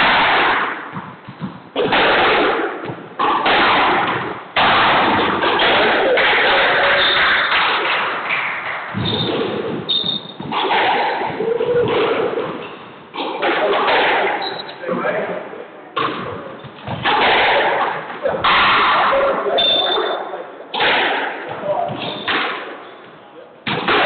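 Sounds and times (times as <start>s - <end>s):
squash ball thuds echoing: 0.0s - 15.1s, 16.0s - 19.6s, 20.7s - 24.0s
shoe squeaks: 9.0s - 10.5s, 14.4s - 14.8s, 19.5s - 20.3s, 21.7s - 23.3s.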